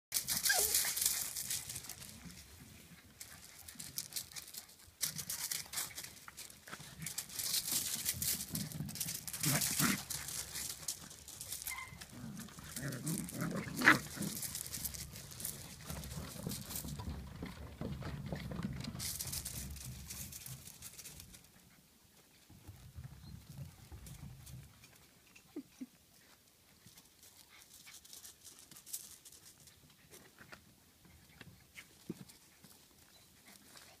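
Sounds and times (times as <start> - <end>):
puppies clicking and scuffing: 0.1 - 21.8, 22.4 - 34.0
puppies yipping and squeaking: 0.2 - 1.4, 11.5 - 12.3
puppy yelping sharply: 0.4 - 0.8, 11.7 - 12.0
puppies growling: 7.9 - 16.6.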